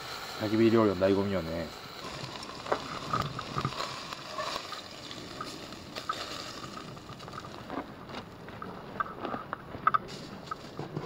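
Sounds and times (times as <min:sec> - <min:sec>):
water boiling in a pot: 0:00.0 - 0:08.5
campfire crackles: 0:00.0 - 0:11.0.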